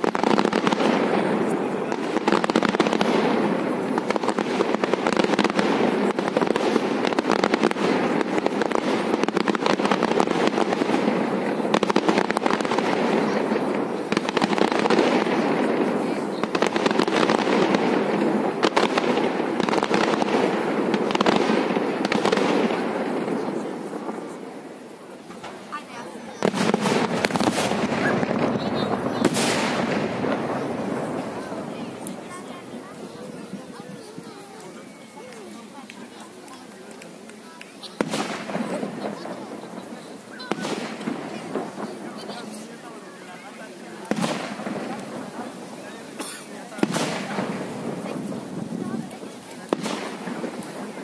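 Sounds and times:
fireworks crackling: 0.0 - 51.0.

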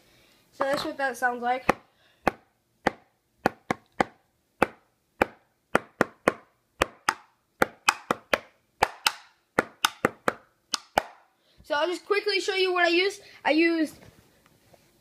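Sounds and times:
drumsticks tapping practice pad: 1.7 - 11.3.

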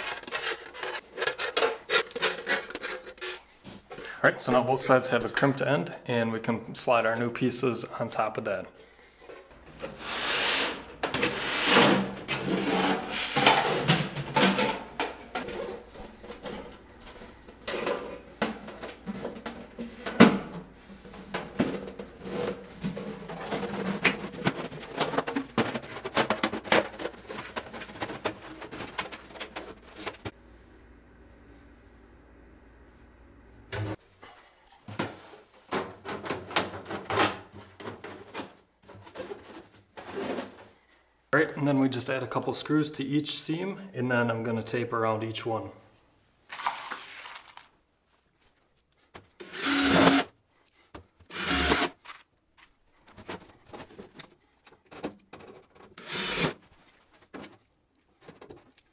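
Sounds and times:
metal duct sections scraping: 0.0 - 3.5, 9.6 - 30.3.

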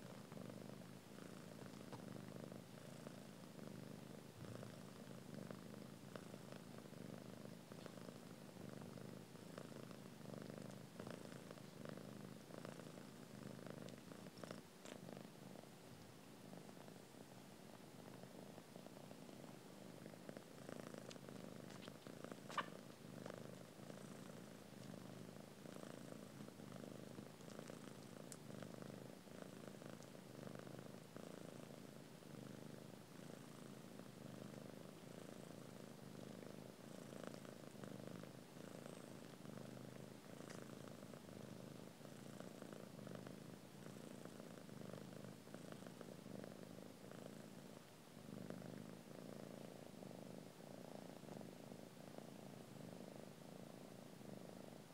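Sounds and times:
cat purring: 0.0 - 54.9.

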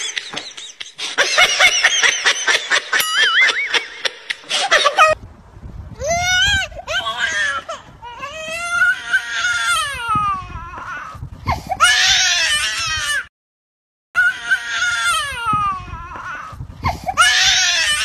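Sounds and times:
high-pitched wailing cries: 6.0 - 13.3, 14.2 - 18.0.

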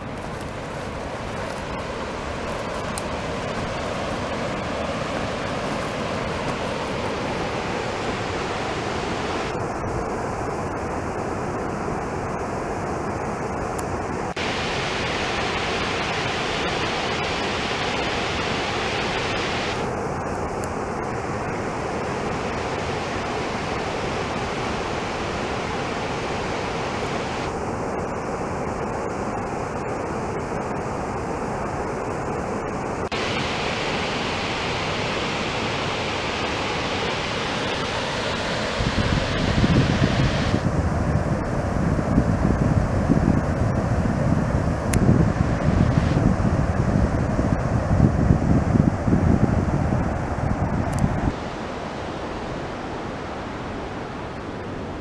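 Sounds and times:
creek rushing over rocks: 0.0 - 9.6.

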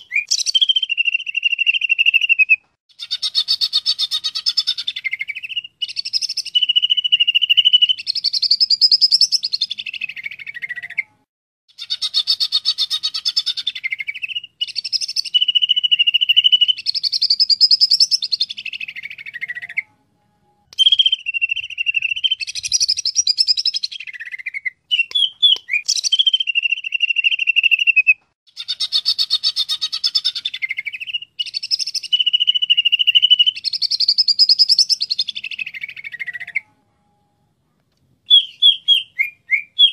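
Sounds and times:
bird singing trills and whistles: 0.0 - 20.0, 20.7 - 36.8, 38.2 - 39.9.

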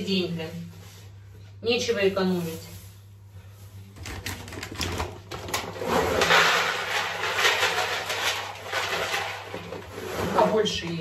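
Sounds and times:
cat litter rattling and rustling: 4.0 - 10.6.

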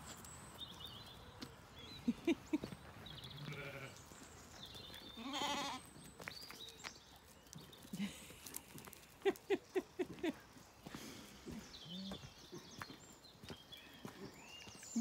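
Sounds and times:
sheep bleating: 3.3 - 4.0, 5.2 - 5.8.

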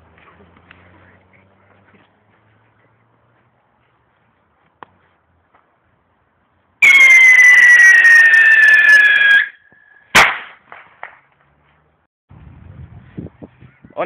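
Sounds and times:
whistling firework: 6.8 - 10.4
firework bang: 10.1 - 11.2
firework cracks: 10.1 - 11.2.

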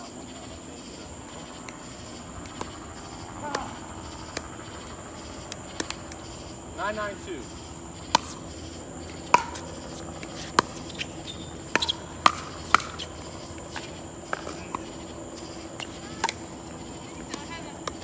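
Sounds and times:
paddles hitting plastic ball: 5.5 - 6.2, 9.0 - 15.0, 15.8 - 16.5.

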